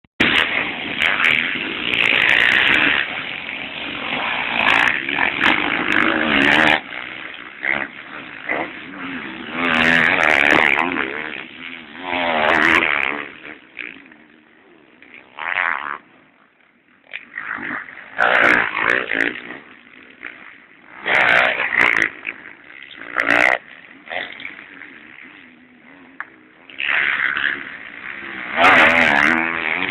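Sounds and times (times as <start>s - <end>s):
motocross bikes revving past: 0.2s - 29.9s.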